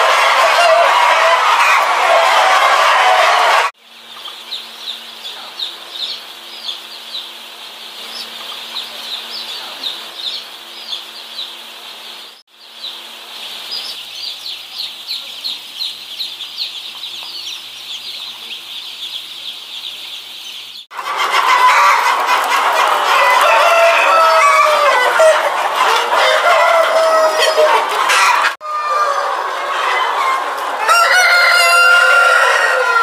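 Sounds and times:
hens clucking and cackling: 0.0s - 3.7s, 20.9s - 33.0s
rooster crowing: 0.0s - 3.7s, 21.2s - 33.0s
chicks peeping: 0.0s - 33.0s.

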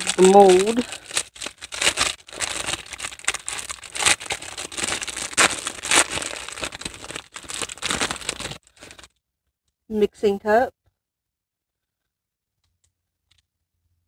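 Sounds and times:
paper shred filler rustling: 0.0s - 9.0s
plastic bag crinkling: 0.0s - 9.2s.

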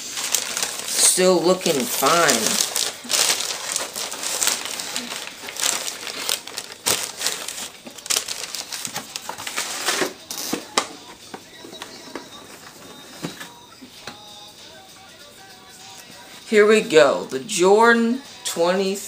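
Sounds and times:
tissue paper rustling and crinkling: 0.0s - 13.6s.

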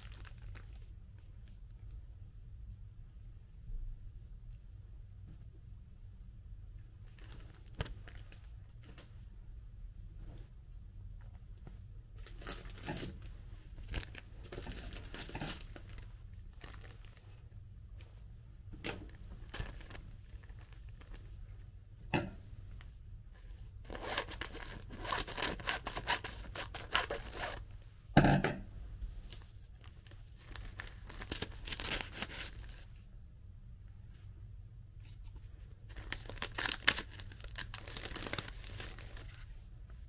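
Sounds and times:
plastic packet crinkling: 0.0s - 1.4s, 7.1s - 8.5s, 12.2s - 17.3s, 19.1s - 21.4s, 23.8s - 27.6s, 29.8s - 32.8s, 35.9s - 39.5s.

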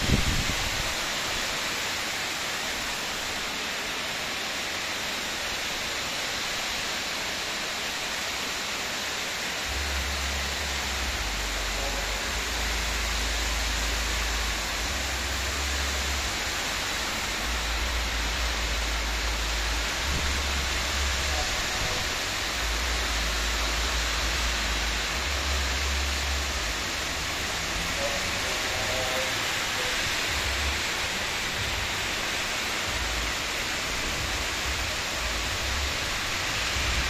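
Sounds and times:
heavy rain pouring: 0.0s - 37.0s
low rumble: 9.7s - 28.6s.

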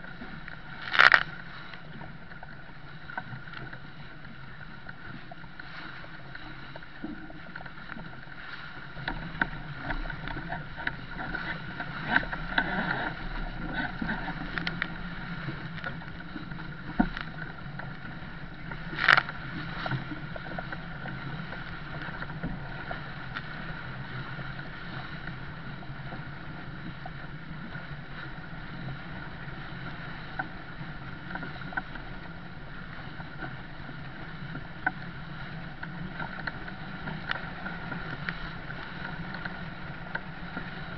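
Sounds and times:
water splashing along hull: 0.0s - 40.9s.

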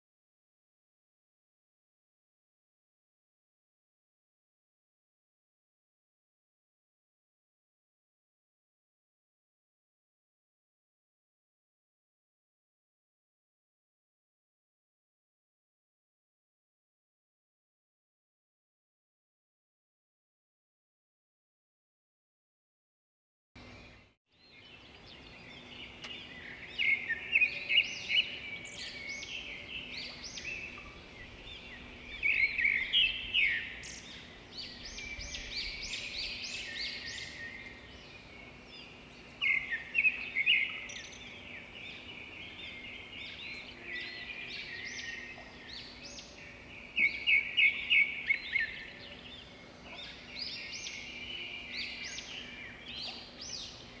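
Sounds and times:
bird song of rapid notes: 23.6s - 54.0s
birds chirping: 23.6s - 54.0s.

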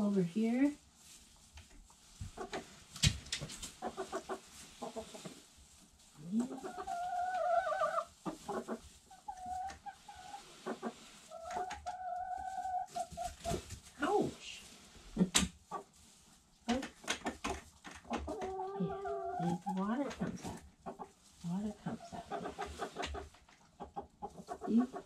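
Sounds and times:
hens clucking: 2.2s - 2.8s, 3.6s - 5.4s, 6.2s - 14.3s, 15.0s - 16.0s, 16.7s - 25.0s
hen long drawn-out calls: 6.4s - 12.9s.

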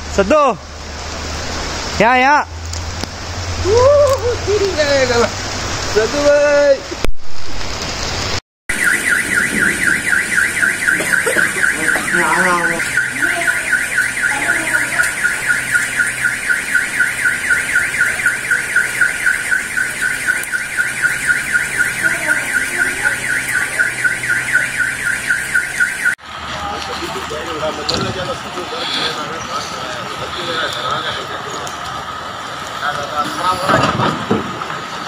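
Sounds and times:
car alarm warbling: 8.7s - 26.2s.

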